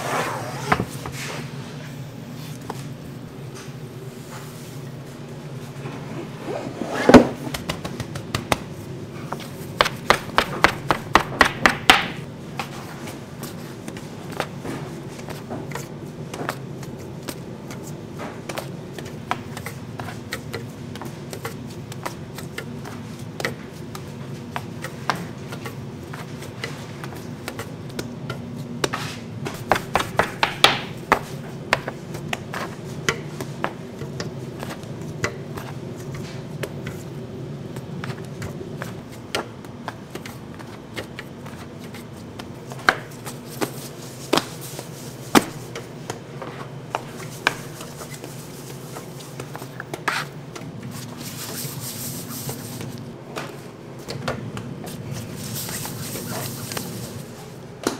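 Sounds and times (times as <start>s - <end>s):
kitchen equipment hum: 0.0s - 57.9s.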